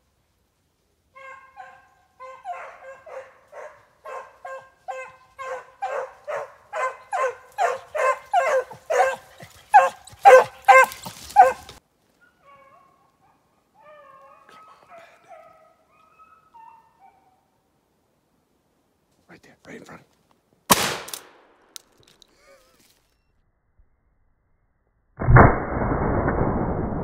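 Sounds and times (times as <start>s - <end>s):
hounds baying: 1.2s - 17.4s.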